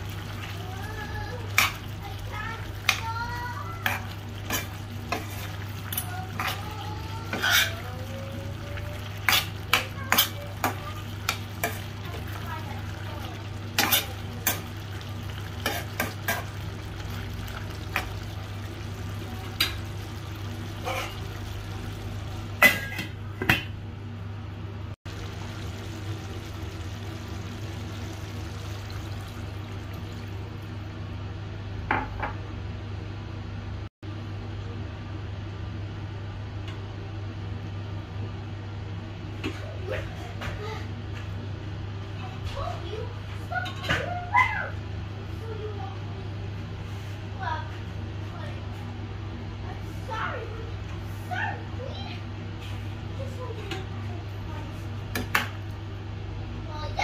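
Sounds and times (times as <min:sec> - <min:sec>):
faint sizzling: 0:00.0 - 0:23.0, 0:25.1 - 0:31.1
metal spatula scraping a pan: 0:06.4 - 0:08.2, 0:13.7 - 0:14.7, 0:20.7 - 0:21.3.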